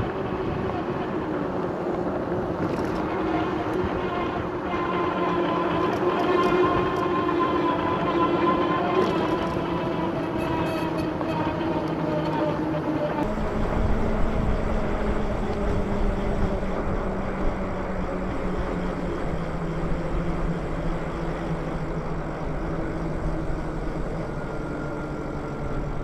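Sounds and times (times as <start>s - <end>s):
wind rushing over microphone: 0.0s - 12.1s, 12.7s - 26.0s
electric motor hum: 13.2s - 26.0s.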